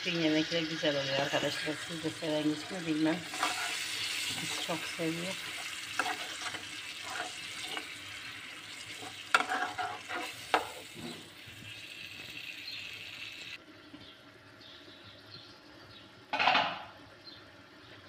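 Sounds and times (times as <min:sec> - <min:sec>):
sauce sizzling in a pan: 0:00.1 - 0:13.6
metal spoon scraping a pan: 0:01.1 - 0:11.3.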